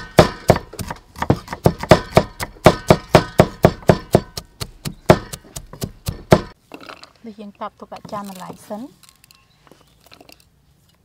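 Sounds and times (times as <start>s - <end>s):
cleaver chopping on wooden board: 0.0s - 6.6s.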